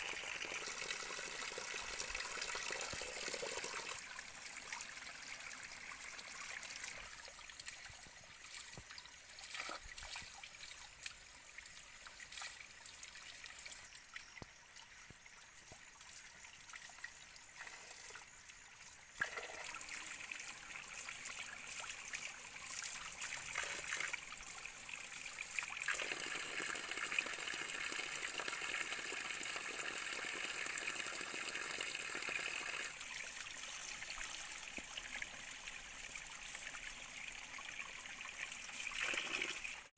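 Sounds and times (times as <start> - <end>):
stream trickling over rocks: 0.0 - 39.9
small clicks and splashes: 6.8 - 20.0.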